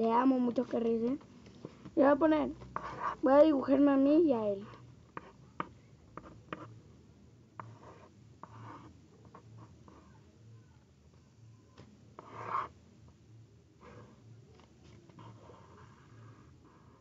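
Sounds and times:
pencil scratching on paper: 1.7s - 3.8s, 4.6s - 6.8s, 7.6s - 10.2s, 12.2s - 12.8s, 13.8s - 14.2s, 15.1s - 17.0s.

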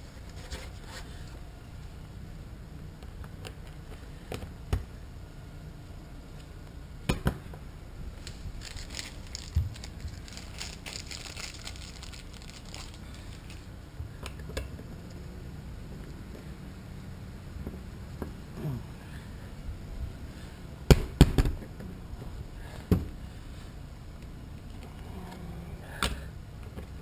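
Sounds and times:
crinkling rustle: 8.1s - 13.8s.

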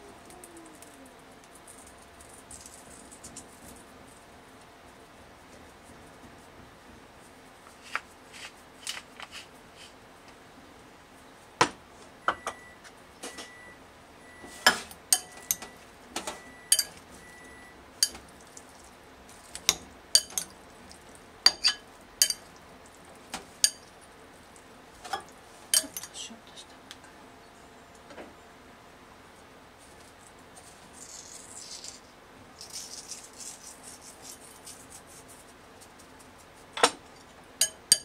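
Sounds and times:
spoon clinking against glass bowl: 15.1s - 15.7s, 16.7s - 17.0s, 18.0s - 18.2s, 20.2s - 20.5s, 21.5s - 22.5s, 23.6s - 23.9s, 25.8s - 26.1s, 37.6s - 38.0s.

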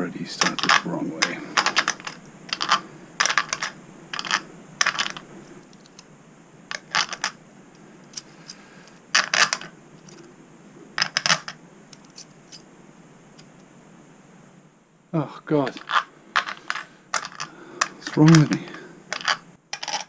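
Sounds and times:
small metal parts clinking: 0.4s - 6.1s, 6.7s - 7.4s, 8.0s - 10.3s, 11.0s - 12.7s, 15.7s - 20.0s.

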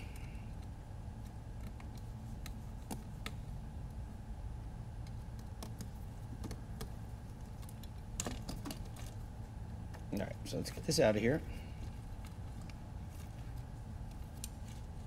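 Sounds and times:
faint steady hum: 0.0s - 15.0s.

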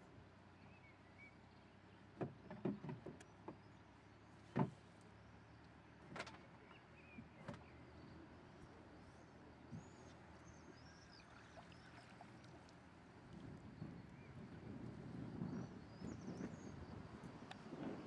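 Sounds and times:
paddle knocking against canoe hull: 2.2s - 3.6s
small water splashes: 10.8s - 14.6s.

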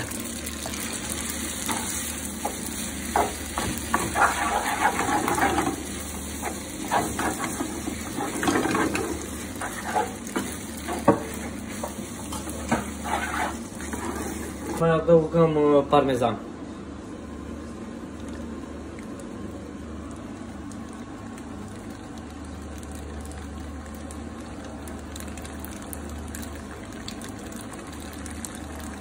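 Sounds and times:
food sizzling in a pan: 0.0s - 14.8s
spatula scraping a pan: 3.9s - 5.7s, 9.6s - 10.2s, 12.3s - 14.8s.

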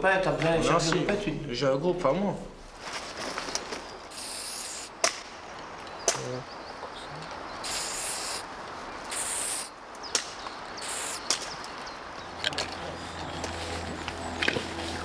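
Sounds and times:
spray-paint can hissing: 4.1s - 4.9s, 7.6s - 8.5s, 9.1s - 9.7s, 10.8s - 11.3s.

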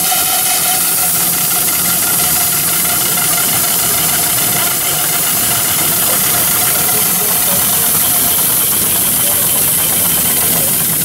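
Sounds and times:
steam engine mechanical running: 0.0s - 11.0s
steam hissing: 0.0s - 11.0s.

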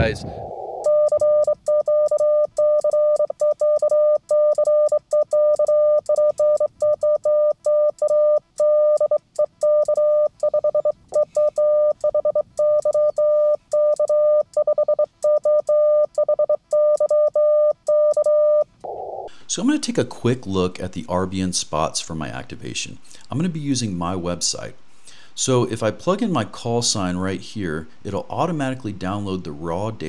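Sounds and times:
morse code tone: 0.6s - 18.7s.

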